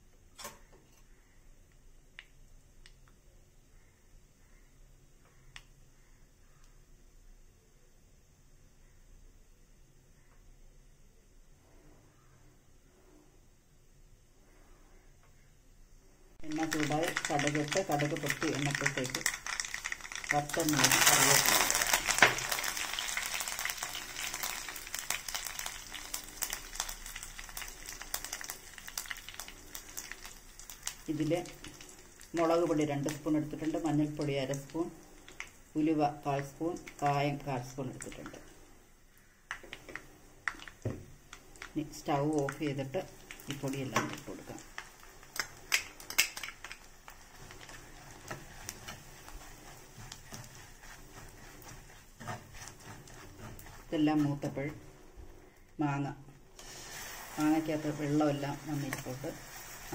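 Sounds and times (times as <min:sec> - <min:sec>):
oil crackling and popping: 0:16.4 - 0:55.7, 0:56.4 - 0:59.9
spices sizzling in hot oil: 0:16.4 - 0:59.9
spoon scraping clay pot: 0:47.3 - 0:54.9.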